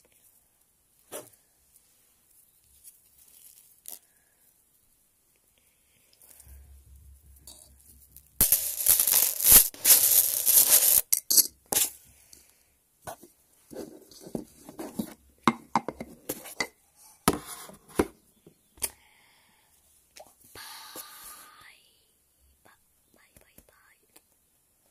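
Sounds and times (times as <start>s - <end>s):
magnets clicking and rattling: 8.4s - 11.9s.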